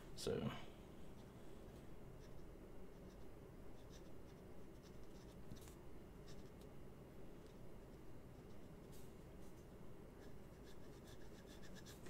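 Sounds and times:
fountain pen scratching on paper: 2.2 - 6.6, 10.2 - 12.0.

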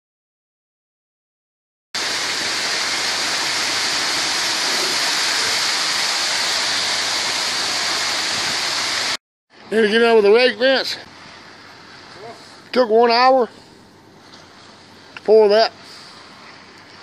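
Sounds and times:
wet concrete sliding down chute: 2.0 - 9.2.

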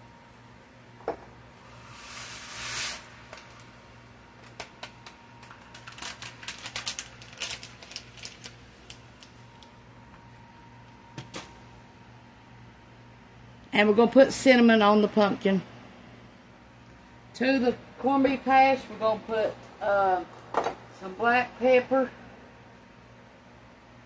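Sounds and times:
dry rice pouring into water: 1.8 - 3.2.

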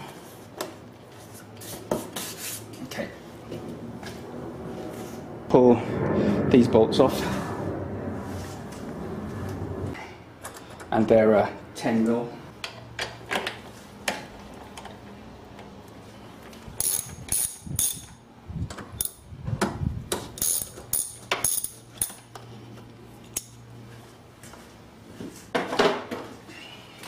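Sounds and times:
ratchet wrench clicking: 16.8 - 18.2, 20.4 - 22.2.

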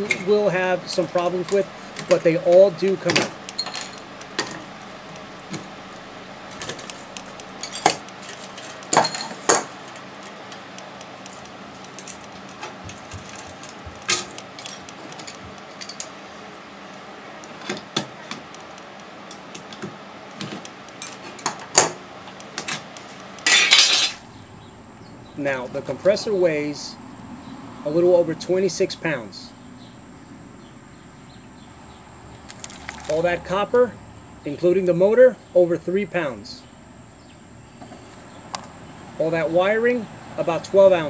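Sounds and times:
metal clatter: 3.0 - 4.7, 6.5 - 10.4, 23.4 - 24.2
scrap metal clinking and knocking: 3.0 - 4.7, 6.5 - 9.8, 11.8 - 16.2, 23.4 - 24.2.

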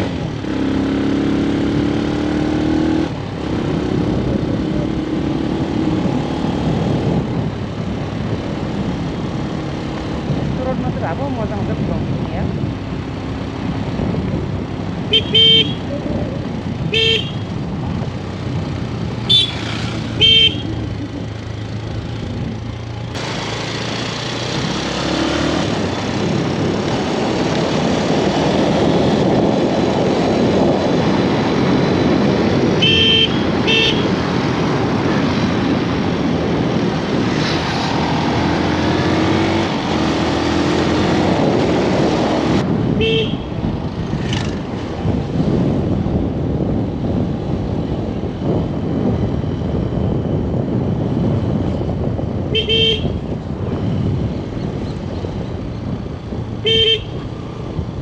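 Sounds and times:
road traffic and engines: 0.0 - 58.0
vehicle horn double toots: 15.1 - 15.9, 16.9 - 17.5, 19.3 - 20.8, 32.8 - 34.2, 43.0 - 43.5, 52.5 - 53.2, 56.6 - 57.2.

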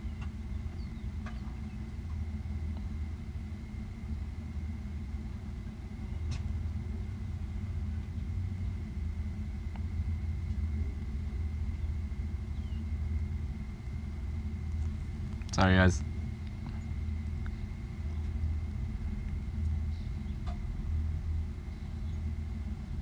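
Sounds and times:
low outdoor rumble: 0.0 - 23.0
faint ticks: 16.4 - 17.6.

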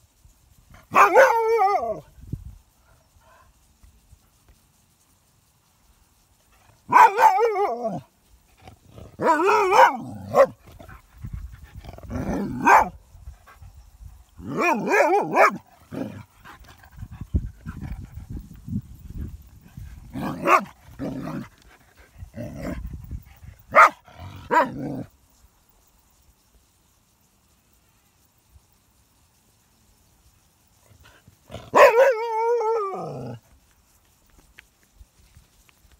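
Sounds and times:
dog barking: 0.9 - 1.9, 6.9 - 7.8, 9.2 - 10.6, 12.6 - 13.0, 14.5 - 15.6, 20.4 - 20.7, 23.7 - 24.8, 31.7 - 32.2.

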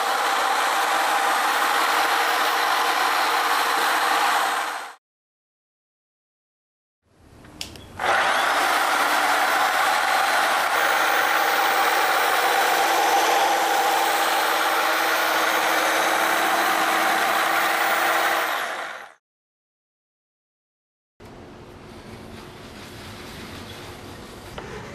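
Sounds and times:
polisher motor whine: 0.0 - 4.9, 8.0 - 19.1
click: 7.4 - 7.9.

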